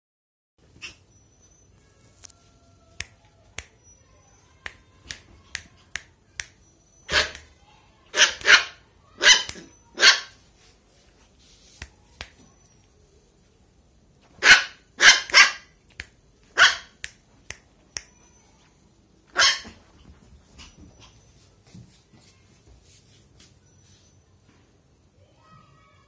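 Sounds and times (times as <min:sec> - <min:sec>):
puppy barking: 0:07.1 - 0:07.5, 0:08.1 - 0:10.4, 0:14.4 - 0:15.7, 0:16.6 - 0:17.0, 0:19.3 - 0:19.8.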